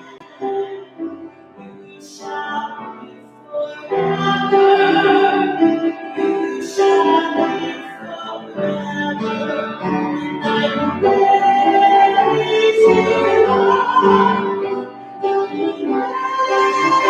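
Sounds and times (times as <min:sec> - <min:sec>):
hymn singing: 0:00.0 - 0:17.0
instrumental accompaniment: 0:02.8 - 0:17.0.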